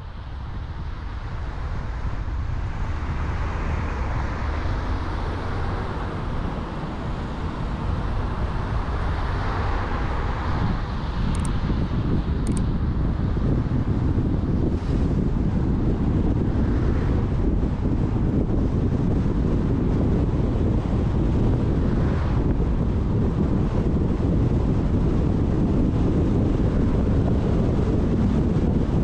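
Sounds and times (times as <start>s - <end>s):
car road and engine rumble: 0.0s - 29.0s
thin high clicks: 11.3s - 11.5s, 12.4s - 12.6s.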